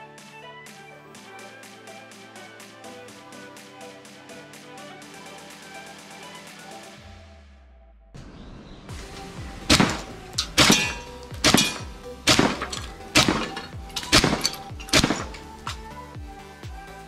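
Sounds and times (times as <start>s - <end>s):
background music: 0.0s - 17.0s
airsoft shotgun shots: 9.7s - 15.4s
disc targets breaking: 9.7s - 15.5s.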